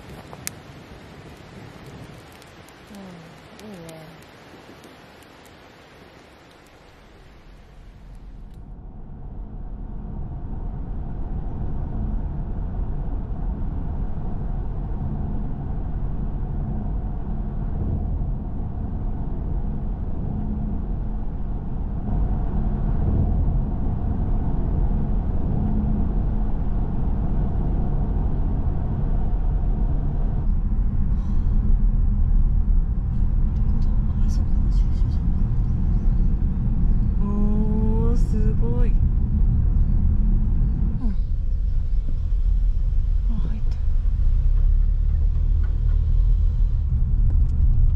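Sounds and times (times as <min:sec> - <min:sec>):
faint clicks: 0:00.0 - 0:00.7, 0:01.3 - 0:08.7
car engine and tyre rumble: 0:00.0 - 0:47.9.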